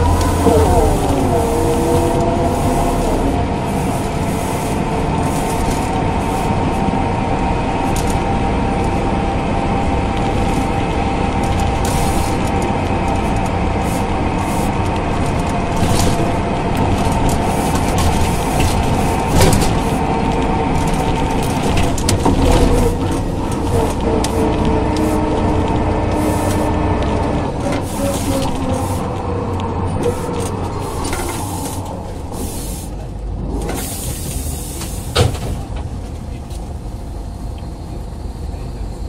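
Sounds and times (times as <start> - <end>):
bus engine whining: 0.0 - 39.0.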